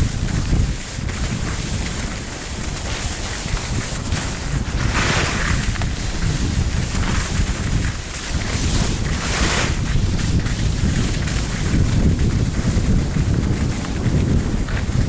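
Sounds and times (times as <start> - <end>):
ski edges scraping: 0.0 - 15.0
skis sliding on snow: 0.0 - 15.0
wind buffeting microphone: 0.0 - 15.0.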